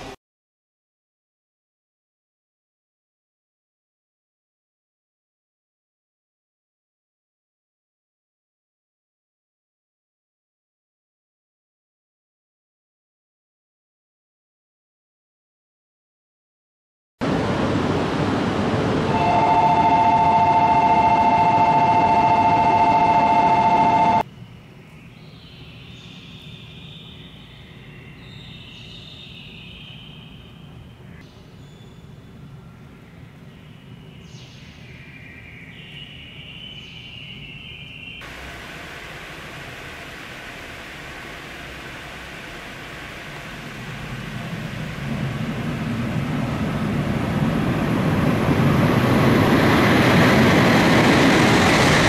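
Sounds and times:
train passing at high speed: 17.2 - 24.2, 38.2 - 52.0
high-pitched ringing from rails: 19.1 - 24.2
steady two-note tone: 19.1 - 24.2
heavy rain hiss: 38.2 - 47.9.

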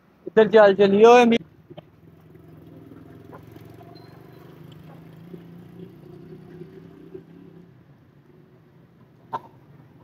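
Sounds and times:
low motor hum: 1.4 - 9.0.

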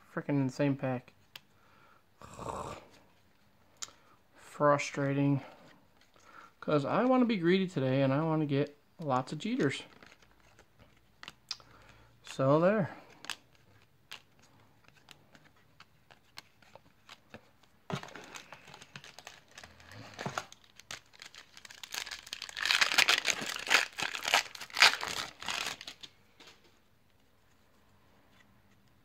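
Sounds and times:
foil wrapper crinkling and tearing: 18.2 - 26.1.

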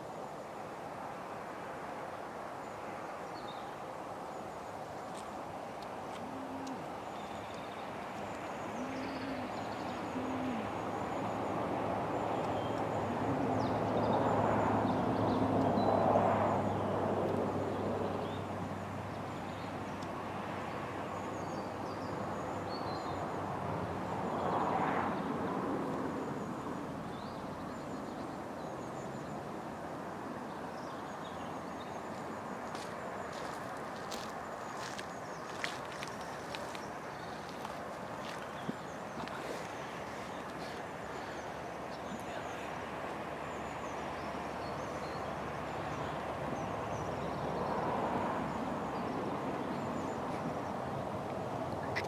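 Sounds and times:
low hooting calls: 6.0 - 15.0.

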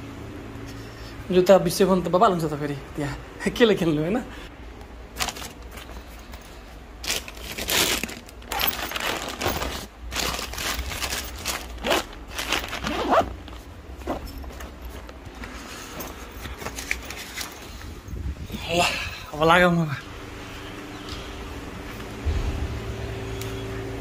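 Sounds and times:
plastic bag crinkling: 5.1 - 6.2, 7.0 - 15.5
nylon backpack rustling: 5.1 - 18.1.

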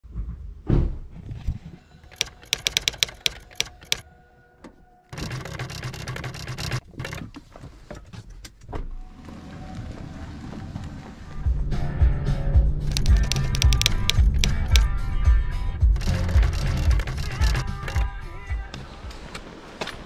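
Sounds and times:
sharp clicks: 2.0 - 4.0, 5.1 - 7.3, 12.9 - 14.9, 16.0 - 18.1.

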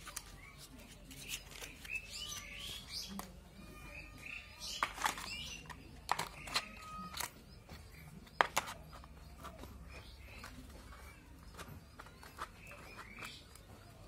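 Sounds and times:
birds chirping: 0.0 - 14.0
plastic toy parts clicking: 4.8 - 7.4.

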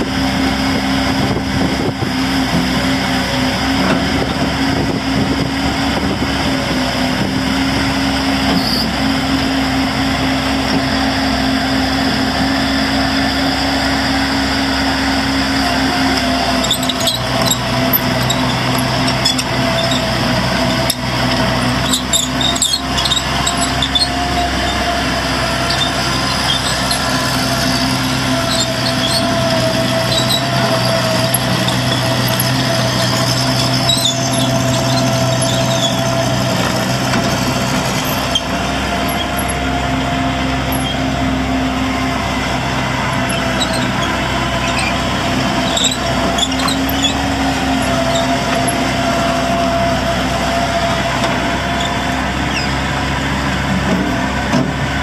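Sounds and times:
constant whine: 0.0 - 55.0
diesel engine running: 0.0 - 55.0
small high squeaks: 8.6 - 8.9, 15.9 - 37.3, 40.7 - 41.1, 43.2 - 49.9, 51.7 - 52.8.

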